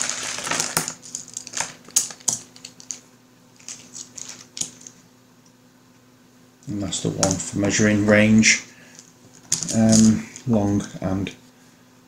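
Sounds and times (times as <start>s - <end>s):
plastic bag crinkling: 0.0s - 3.0s, 3.6s - 4.9s.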